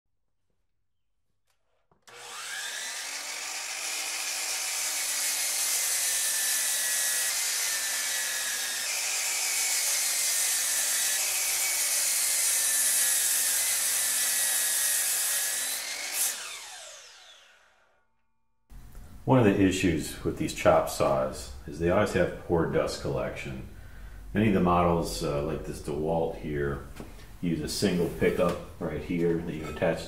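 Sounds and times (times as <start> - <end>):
saw cutting wood: 1.9 - 18.0
miter saw whining: 2.0 - 18.0.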